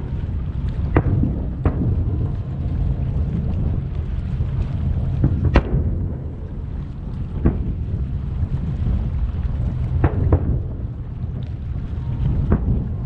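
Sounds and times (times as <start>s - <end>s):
low rumble: 0.0s - 13.0s
firework shells bursting: 5.2s - 6.5s, 9.7s - 13.0s.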